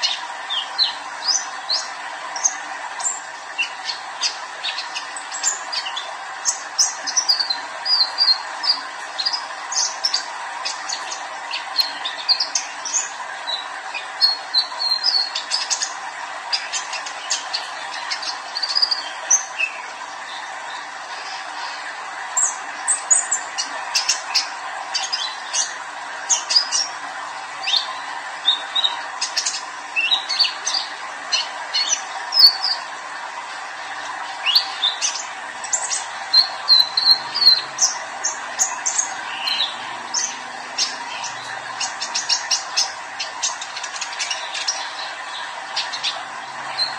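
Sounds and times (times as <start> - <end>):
steady background hum: 0.0 - 46.9
bird singing high chirps: 34.5 - 46.9.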